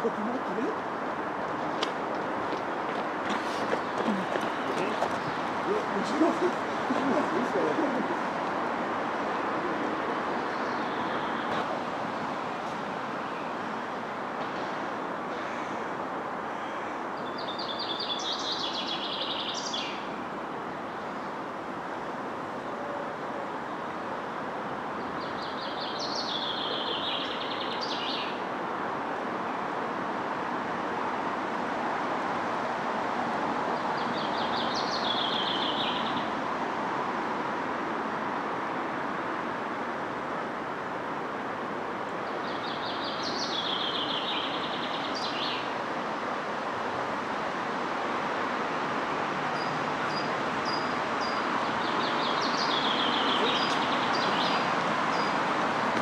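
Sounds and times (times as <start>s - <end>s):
distant traffic hum: 0.0s - 56.0s
songbird singing: 1.8s - 8.3s, 9.2s - 11.7s, 15.4s - 23.0s, 24.6s - 28.5s, 33.7s - 36.4s, 42.1s - 46.3s, 49.5s - 56.0s.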